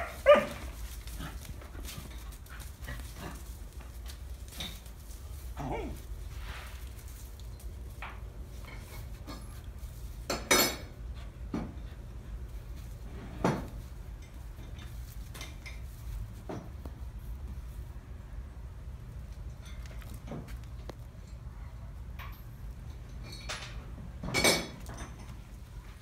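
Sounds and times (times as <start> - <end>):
metallic knocks and clinks: 10.3 - 10.9.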